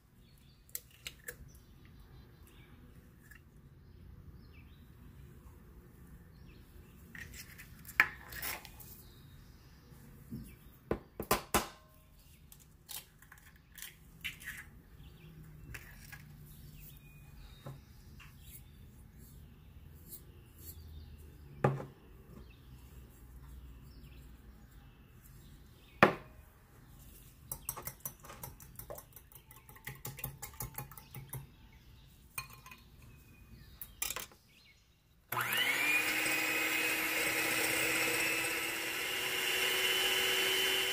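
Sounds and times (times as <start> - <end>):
whisk tapping glass bowl: 27.5 - 31.5
glass bowls and whisk clinking: 32.3 - 32.9
electric hand mixer: 35.3 - 40.9.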